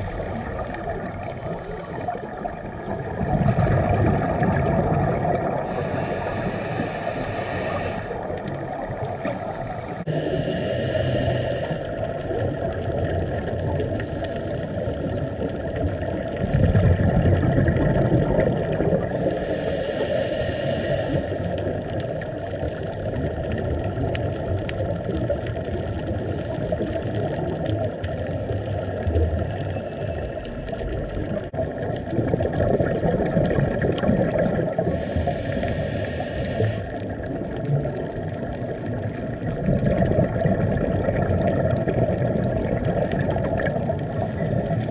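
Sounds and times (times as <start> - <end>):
faint hum: 0.0 - 12.8, 16.6 - 22.0, 34.3 - 37.4, 42.8 - 44.9
exhaled bubbles hissing: 0.0 - 44.9
muffled underwater rush: 0.0 - 44.9.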